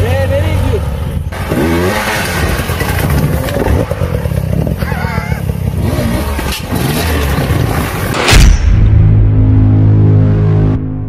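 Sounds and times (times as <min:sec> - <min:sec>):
dirt bike engines revving: 0:00.0 - 0:08.2.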